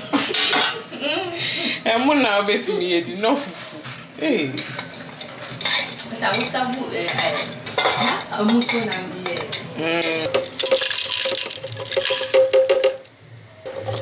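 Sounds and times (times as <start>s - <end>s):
metal utensils clinking on cookware: 4.6s - 13.0s.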